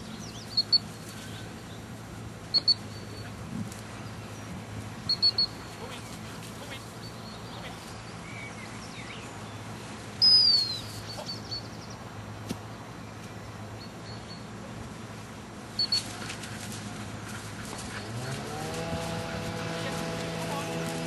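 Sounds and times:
dog training whistle: 2.5 - 3.3, 5.1 - 5.6, 10.2 - 11.3, 15.8 - 16.1.

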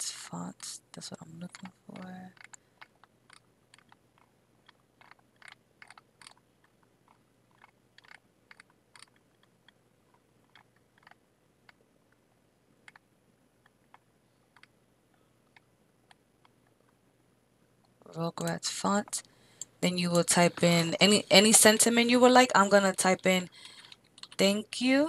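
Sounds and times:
mouse scroll wheel clicks: 1.5 - 11.8, 12.8 - 13.0, 13.6 - 14.7, 23.6 - 24.4.

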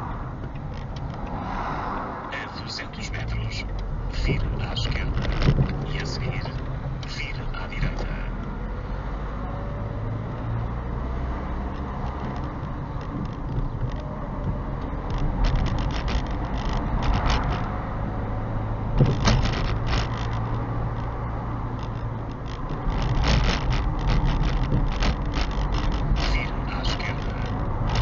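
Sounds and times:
car engine and road hum: 0.0 - 28.0
small clicks and rattles: 11.6 - 17.9, 18.9 - 28.0.

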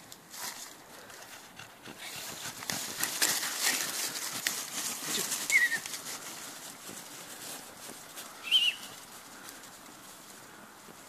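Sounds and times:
dry leaves rustling and crackling: 0.0 - 1.2, 2.0 - 11.0
puppy squeaking: 5.5 - 5.9.

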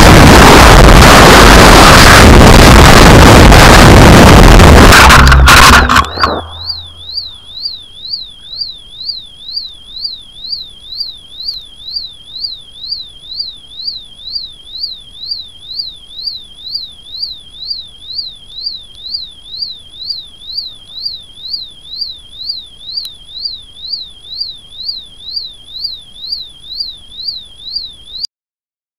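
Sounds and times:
electronic beeper warbling: 0.0 - 7.5.

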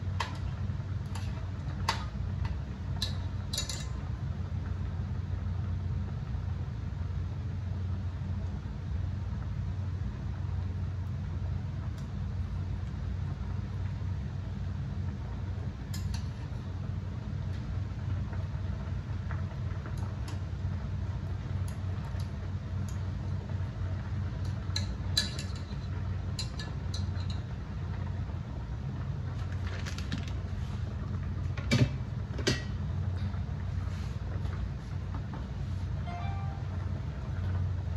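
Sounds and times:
water boiling in pot: 0.0 - 36.0.

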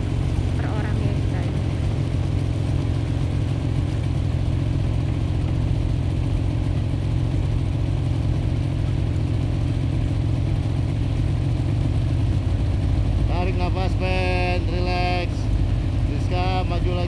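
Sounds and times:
boat engine droning: 0.0 - 17.0.

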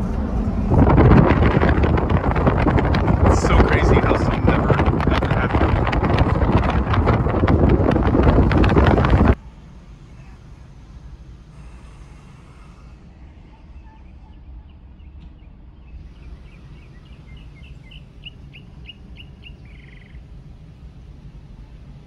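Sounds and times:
car low rumble: 0.0 - 22.0
bird chirping: 13.8 - 20.3.

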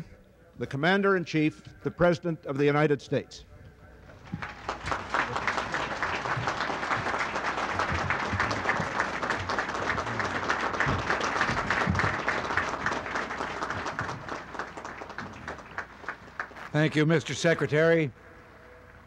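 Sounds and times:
audience applauding: 4.2 - 17.2.

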